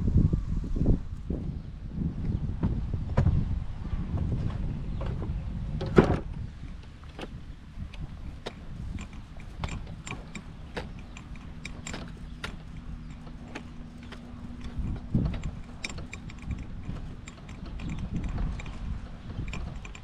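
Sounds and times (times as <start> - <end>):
wind rumble on microphone: 0.0 - 20.0
golf cart and clubs rattling: 4.2 - 20.0.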